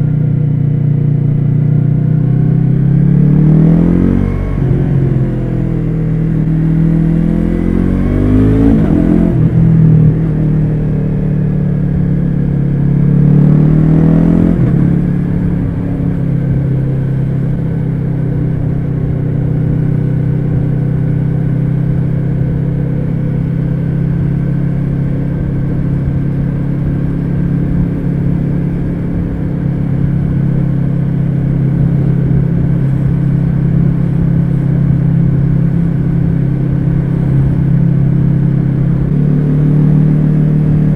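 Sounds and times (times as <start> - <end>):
motorcycle engine accelerating: 0.0 - 40.9.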